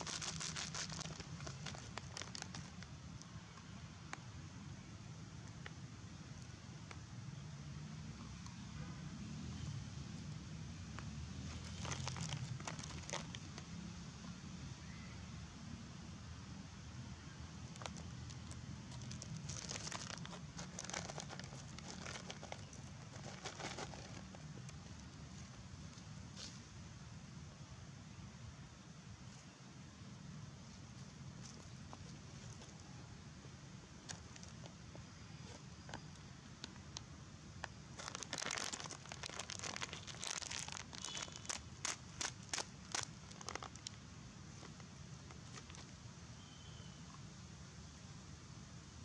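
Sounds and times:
monkey chewing food crackling: 0.0 - 2.8, 17.8 - 24.8, 38.0 - 44.0
monkey chewing crunchy food: 19.0 - 24.8.

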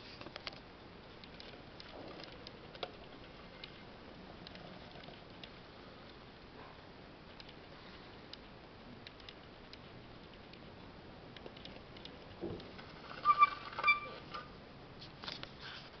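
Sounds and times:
short loud squeaks: 12.9 - 14.5.

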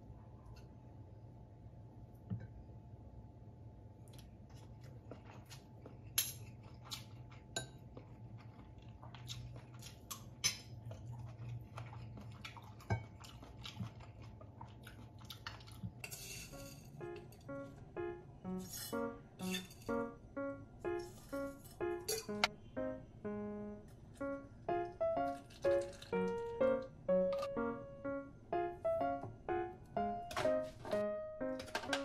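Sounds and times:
chewing: 4.1 - 16.0
steady low hum: 16.0 - 30.3
soft music: 16.4 - 32.0
cutlery clinking on ceramic bowl: 18.8 - 20.0, 22.1 - 22.5.

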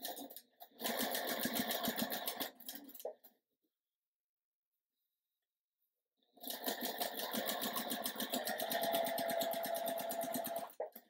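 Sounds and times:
sewing machine stitching: 0.0 - 3.0, 6.4 - 11.0.

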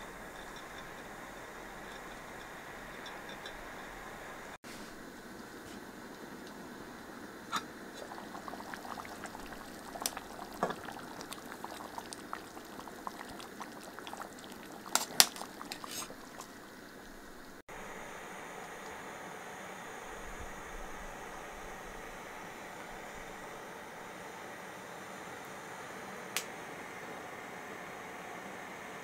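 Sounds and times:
stew bubbling in a pot: 0.0 - 19.0.

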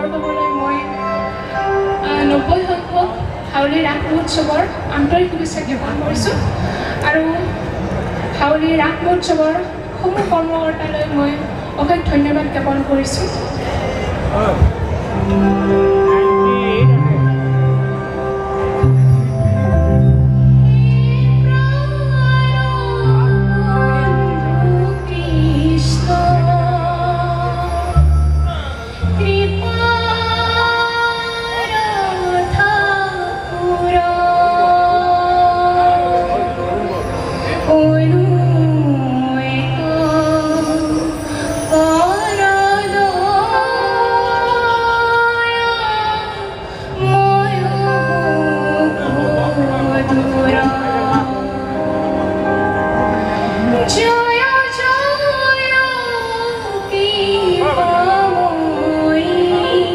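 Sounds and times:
woman singing into a microphone: 0.0 - 7.6, 20.5 - 59.9
keyboard and band accompaniment: 0.0 - 59.9.

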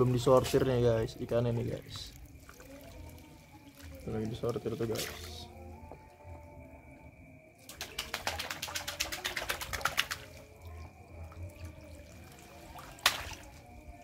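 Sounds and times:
water splashing through basket: 2.0 - 5.6, 7.6 - 13.9.

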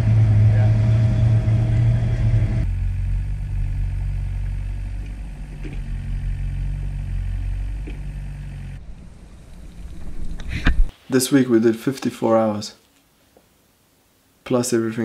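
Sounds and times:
excavator diesel engine running: 0.0 - 10.4.

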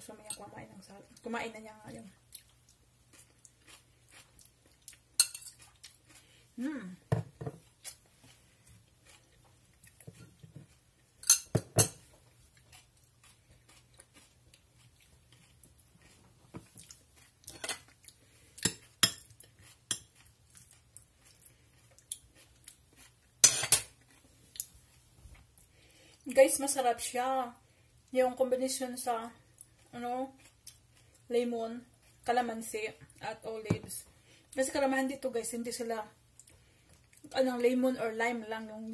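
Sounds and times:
fork clinking on glass bowl: 5.2 - 5.6, 11.2 - 12.0
bowls knocking on countertop: 7.1 - 7.6.

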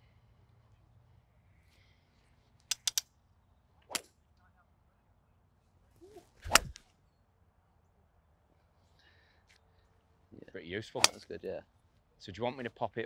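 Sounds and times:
golf clubs striking balls: 2.7 - 3.0, 11.0 - 11.3.

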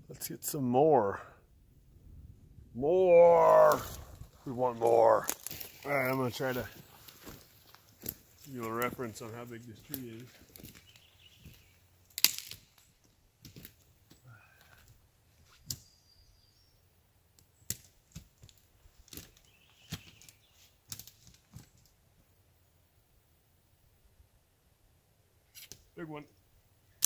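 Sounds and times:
footsteps snapping twigs: 3.3 - 15.9, 17.4 - 22.0.

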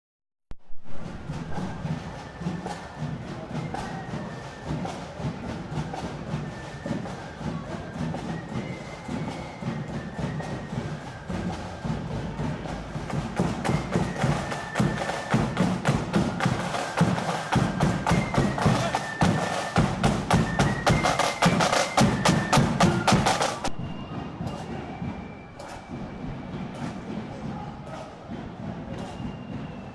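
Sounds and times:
snare drums: 0.8 - 29.9.

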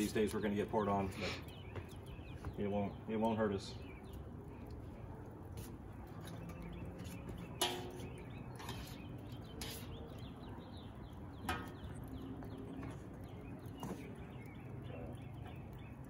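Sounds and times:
tongs clanking against a wok: 6.4 - 10.4, 11.4 - 12.0.

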